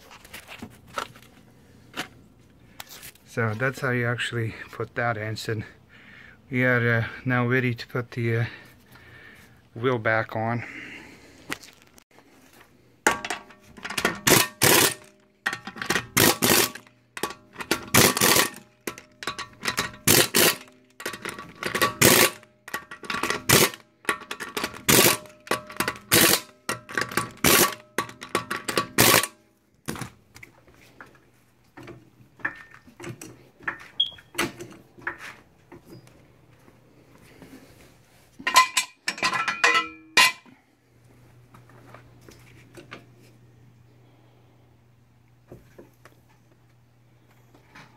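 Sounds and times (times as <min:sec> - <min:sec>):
knocks and clanks: 0:13.1 - 0:30.1
impact wrench bursts: 0:13.8 - 0:29.4.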